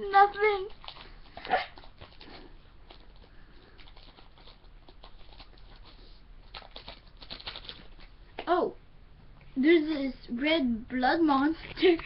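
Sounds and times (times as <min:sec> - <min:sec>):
trading cards rustling and clicking: 0:00.1 - 0:08.2, 0:11.5 - 0:12.0.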